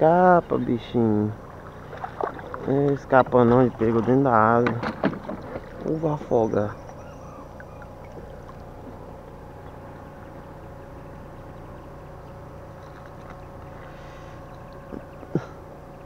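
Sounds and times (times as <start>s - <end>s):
low tonal hum: 0.0s - 16.0s.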